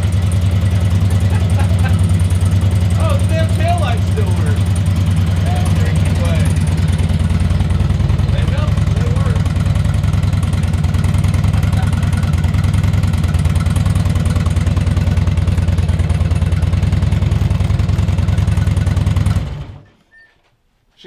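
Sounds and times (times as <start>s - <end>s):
motorcycle engine idling: 0.0s - 19.9s.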